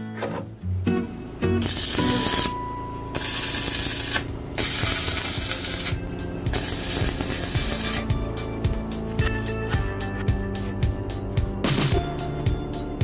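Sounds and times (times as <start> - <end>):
background music: 0.0 - 13.0
welding arc crackling and hissing: 1.4 - 2.6, 3.2 - 8.2.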